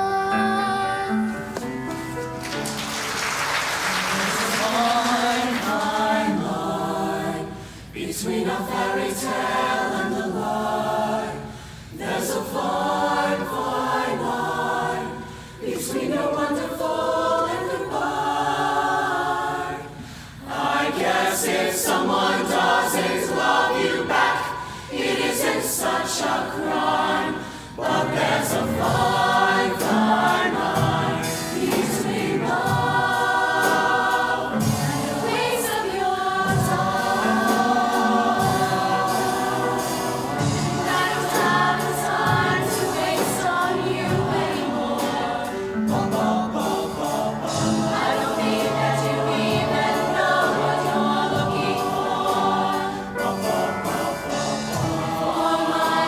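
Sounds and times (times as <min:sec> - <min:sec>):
choir singing in harmony: 0:00.0 - 0:56.0
singers breathing: 0:07.5 - 0:08.0, 0:11.4 - 0:12.0, 0:15.2 - 0:15.7, 0:19.9 - 0:20.5, 0:24.5 - 0:25.0, 0:27.4 - 0:27.8.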